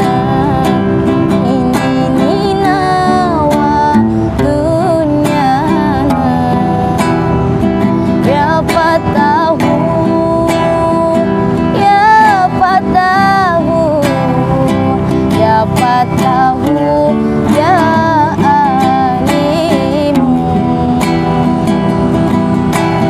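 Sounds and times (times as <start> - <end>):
strummed acoustic guitar: 0.0 - 23.0
woman singing: 0.0 - 23.0.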